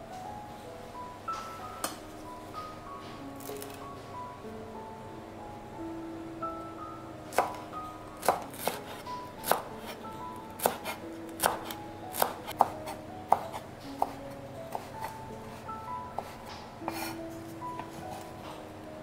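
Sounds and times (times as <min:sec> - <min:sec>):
light background music: 0:00.0 - 0:19.0
knife chopping on wooden board: 0:07.3 - 0:07.6, 0:08.2 - 0:10.0, 0:10.6 - 0:15.2, 0:16.2 - 0:17.2.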